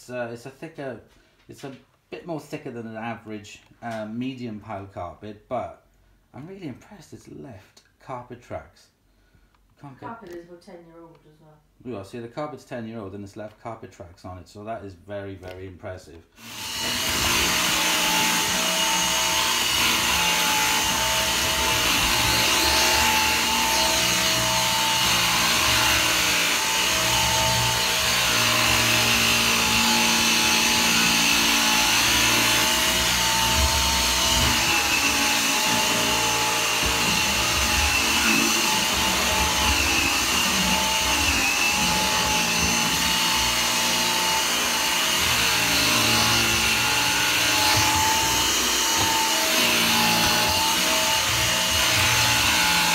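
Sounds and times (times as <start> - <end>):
vacuum cleaner running over carpet: 16.5 - 52.9.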